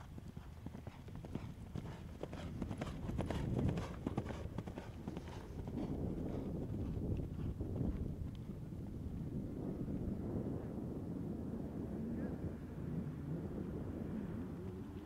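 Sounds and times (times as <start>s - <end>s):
horse hoofbeats galloping on grass: 0.0s - 9.6s.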